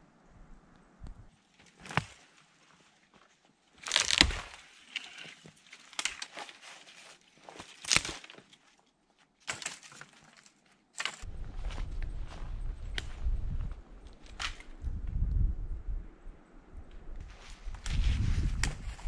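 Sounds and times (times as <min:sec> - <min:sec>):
low rumble: 0:00.0 - 0:01.3, 0:11.2 - 0:19.0
dead branch cracking and rustling: 0:01.5 - 0:15.2, 0:16.9 - 0:19.0.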